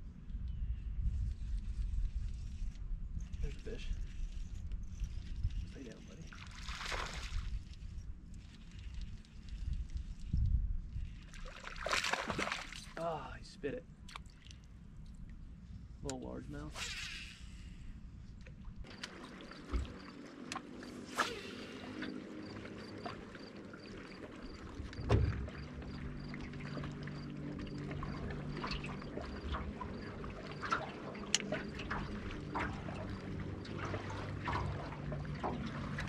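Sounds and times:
steady low hum: 0.0 - 36.0
water lapping against boat hull: 18.3 - 36.0.

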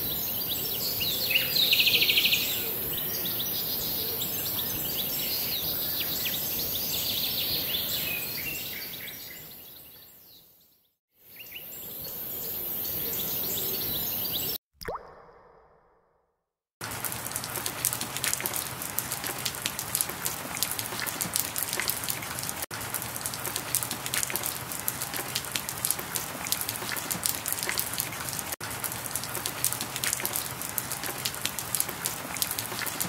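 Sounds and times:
steady rain: 16.8 - 33.0.

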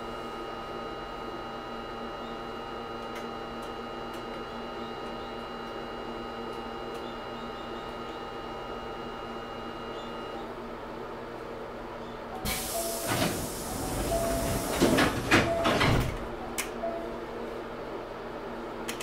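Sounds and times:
pneumatic door air hiss: 12.4 - 16.1
doors thudding shut: 13.0 - 16.2.

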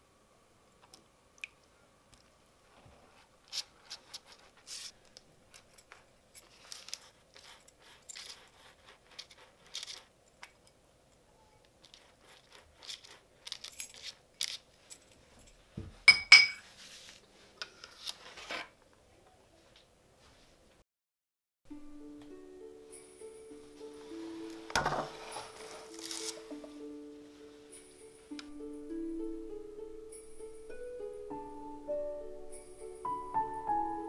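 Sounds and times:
crisp crunches: 25.2 - 26.5.

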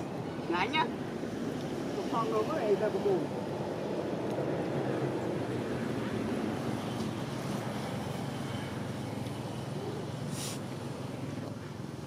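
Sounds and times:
brief hiss: 10.3 - 10.7.

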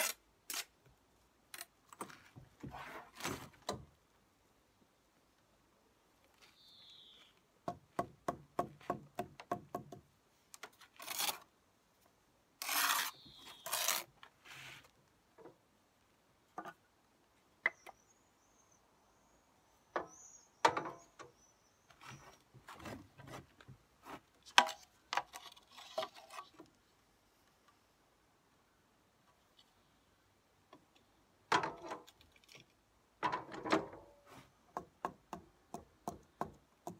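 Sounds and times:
trowel scraping brick: 12.6 - 14.7.

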